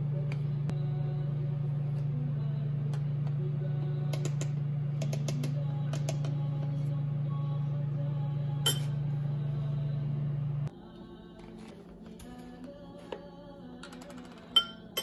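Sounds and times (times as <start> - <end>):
steady low hum: 0.0 - 15.0
spoon clinking on glass: 8.6 - 9.0, 14.4 - 15.0.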